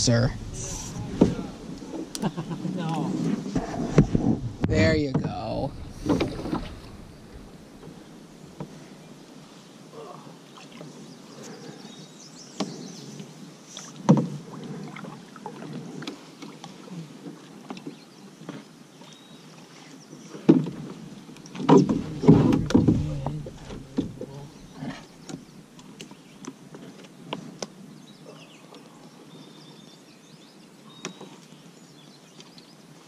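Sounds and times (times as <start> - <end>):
water splashing: 0.0 - 11.0, 20.4 - 26.0
paddle in water: 0.0 - 33.0
knocks on a canoe: 3.6 - 7.9, 21.6 - 25.4.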